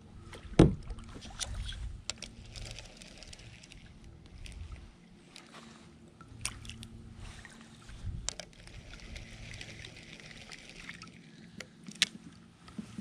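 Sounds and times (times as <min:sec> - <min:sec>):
water lapping against kayak: 0:00.2 - 0:13.0
fishing reel whirring: 0:02.2 - 0:04.8, 0:08.2 - 0:11.1.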